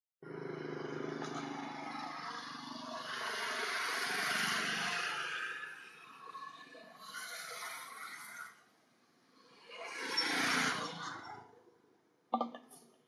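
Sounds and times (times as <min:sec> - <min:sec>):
vehicle passing by: 0:00.2 - 0:08.1.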